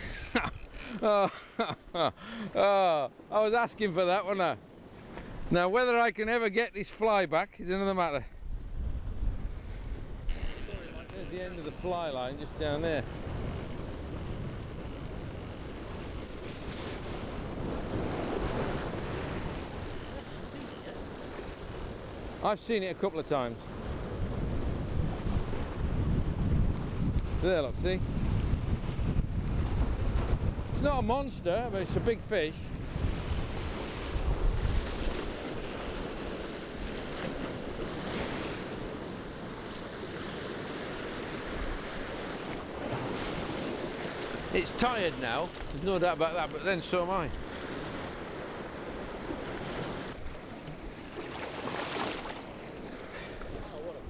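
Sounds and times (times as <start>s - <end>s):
wind: 0.0s - 54.0s
sea water rushing: 10.1s - 26.0s, 32.9s - 54.0s.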